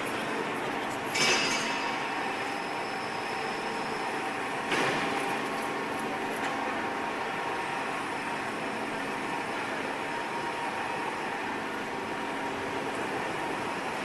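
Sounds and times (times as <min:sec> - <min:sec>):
machinery hum: 0:00.0 - 0:14.0
metallic clank of steel on steel: 0:01.1 - 0:02.0.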